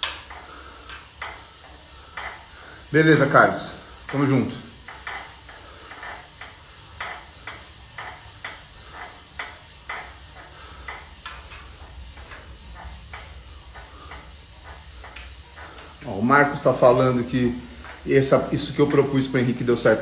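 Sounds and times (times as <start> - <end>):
light clicks and taps: 4.0 - 16.1.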